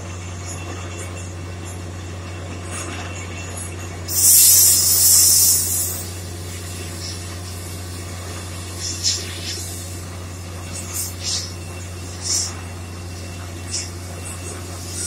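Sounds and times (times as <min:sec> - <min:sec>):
drilling rig engine drone: 0:04.0 - 0:15.0
compressed air hissing: 0:04.1 - 0:07.2.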